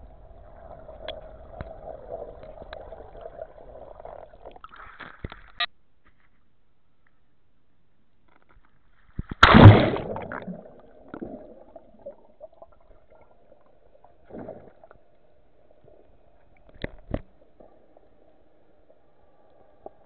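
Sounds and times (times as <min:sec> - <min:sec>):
faint steady hum: 0:00.0 - 0:20.0
water splashing over camera: 0:09.4 - 0:12.3.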